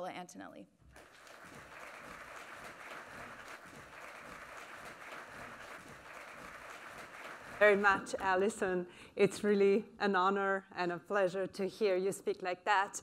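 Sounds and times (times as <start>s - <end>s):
audience applauding: 0.9s - 8.3s.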